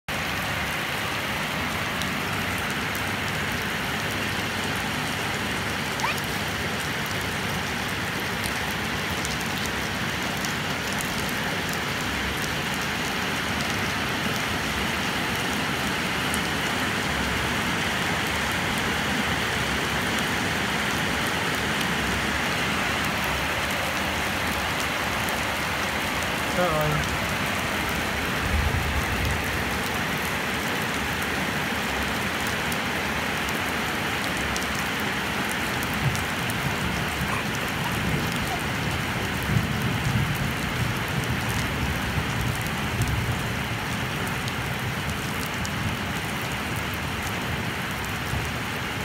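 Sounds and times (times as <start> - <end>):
steady rain on concrete: 0.1 - 49.0
raindrop taps: 35.8 - 41.7.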